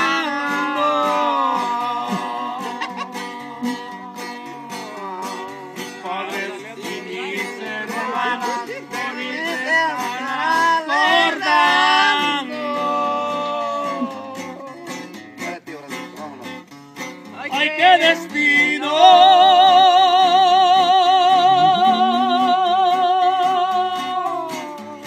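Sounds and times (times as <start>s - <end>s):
acoustic guitar strumming: 0.0s - 25.0s
sliding wavering melody line: 21.4s - 22.6s.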